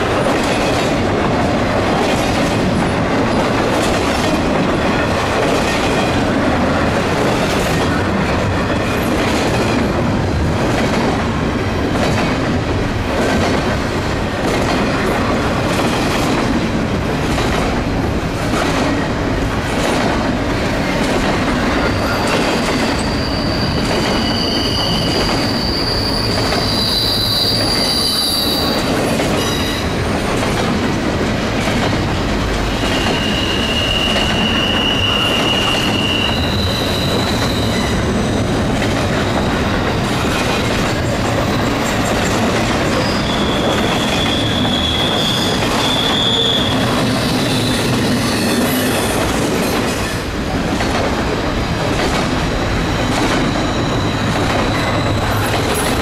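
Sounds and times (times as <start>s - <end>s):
freight train wheels rumbling: 0.0s - 56.0s
high wheel squeal: 21.8s - 30.0s, 32.7s - 38.5s, 42.9s - 49.2s, 52.8s - 56.0s.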